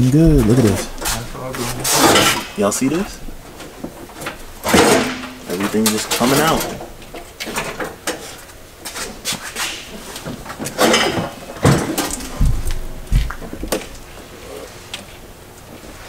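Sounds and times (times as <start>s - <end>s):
heavy low thumps: 0.0s - 1.4s, 12.4s - 13.6s
metal parts clanking: 1.8s - 3.0s, 4.2s - 8.4s, 10.6s - 12.4s.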